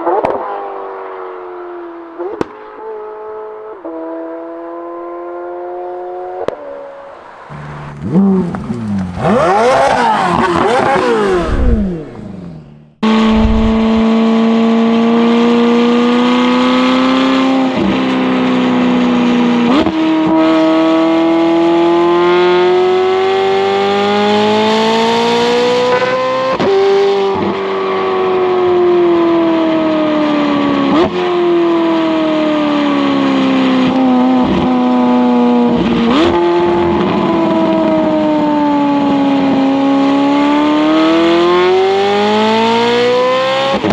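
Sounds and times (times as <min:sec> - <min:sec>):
car engine revving with gear changes: 0:01.5 - 0:43.9
sports car passing by: 0:06.8 - 0:15.3.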